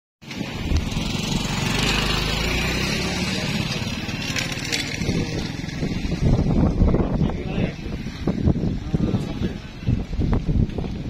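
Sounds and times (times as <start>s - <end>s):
small engine running: 0.4s - 6.2s.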